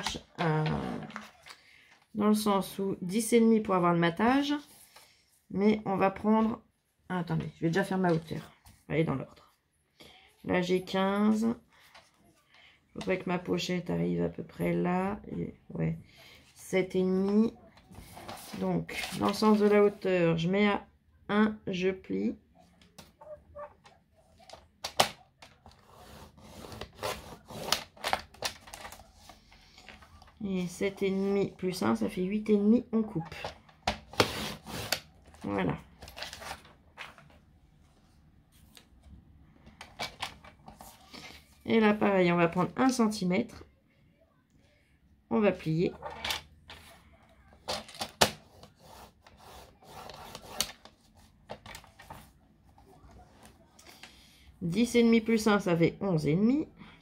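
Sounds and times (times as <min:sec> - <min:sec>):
paper scraping and rubbing: 0:25.6 - 0:30.1, 0:34.1 - 0:35.1, 0:48.5 - 0:52.4.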